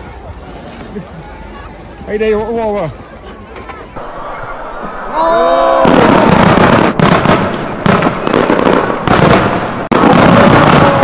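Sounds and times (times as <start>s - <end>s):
fireworks bangs: 4.0s - 11.0s
fireworks crackling: 4.0s - 11.0s.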